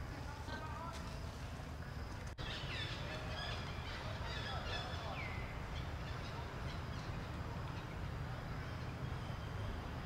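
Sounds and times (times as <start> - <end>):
low rumble of background noise: 0.0 - 10.0
high chirping calls: 2.4 - 9.8.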